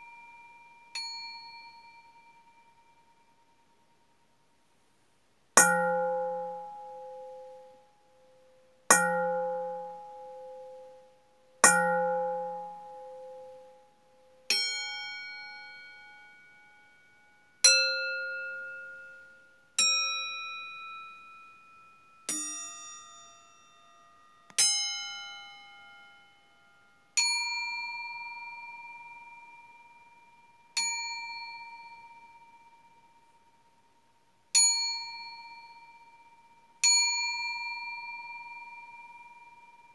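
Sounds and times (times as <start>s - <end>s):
metal bowls ringing when struck: 5.6s - 7.8s, 8.9s - 11.0s, 11.6s - 13.8s.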